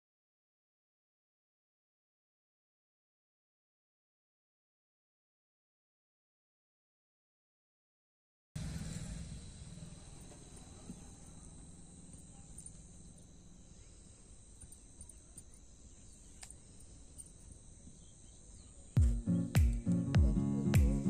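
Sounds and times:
low rumble: 8.6 - 13.6
high-pitched insect drone: 8.6 - 21.0
faint ticks: 10.2 - 20.2.

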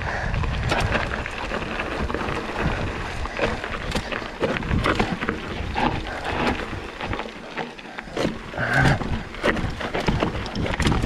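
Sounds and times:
wind rushing over microphone: 0.0 - 7.3
bike rattling over bumps: 0.0 - 11.0.

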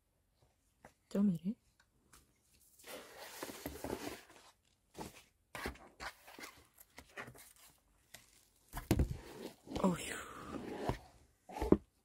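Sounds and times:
paper and cardboard rustling: 2.6 - 10.0.

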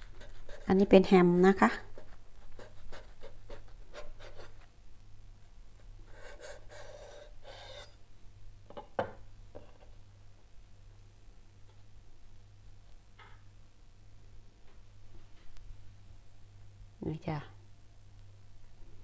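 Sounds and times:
knife sawing through bread: 6.1 - 7.9.

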